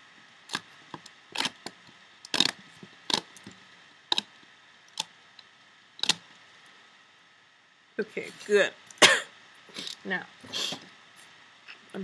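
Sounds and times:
rubber bands clicking on loom: 0.5 - 3.5.

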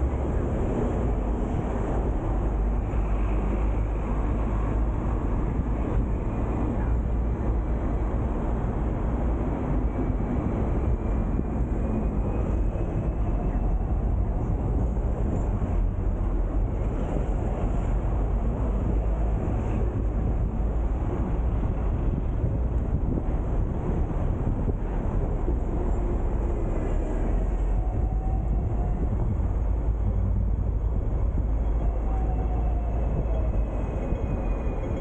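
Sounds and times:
road noise: 0.0 - 35.0
tram wheels rumbling on rails: 0.0 - 35.0.

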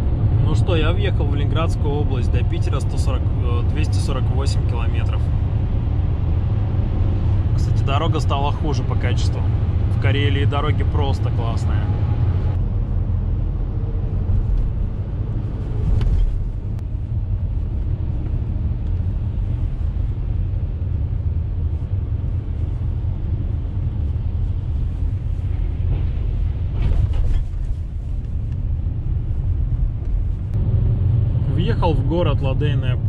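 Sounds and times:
car engine and tyre rumble: 0.0 - 33.0.

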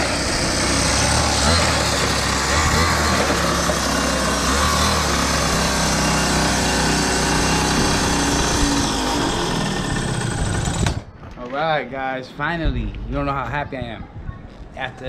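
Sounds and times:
small gas engine running: 0.0 - 11.2.

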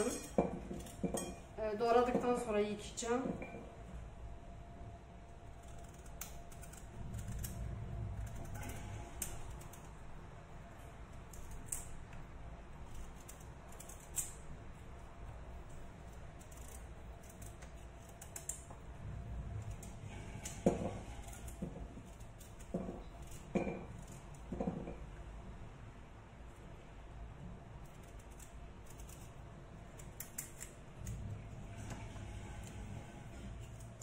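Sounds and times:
knife scraping pumpkin: 5.4 - 10.2, 12.8 - 24.5, 27.8 - 34.0.

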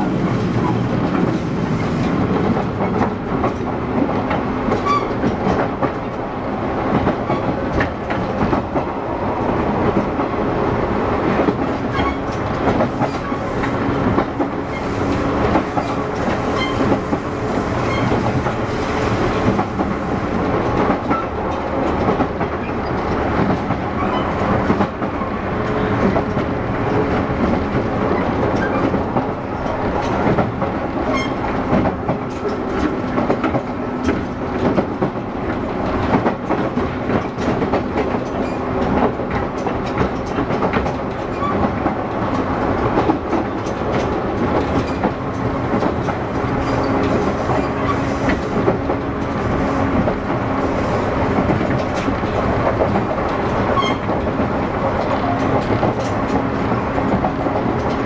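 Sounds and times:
wheels clicking over rail joints: 11.3 - 58.0
electric train running noise: 12.3 - 23.4, 42.0 - 58.0.

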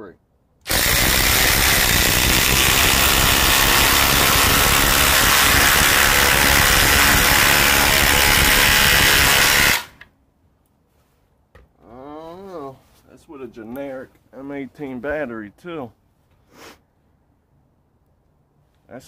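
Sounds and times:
impact drivers hammering: 0.7 - 10.0.

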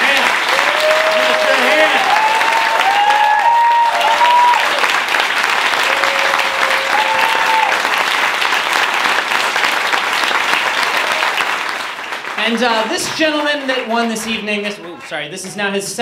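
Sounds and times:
crowd cheering calls: 0.0 - 8.1, 10.6 - 11.8
audience applauding: 0.0 - 14.9.

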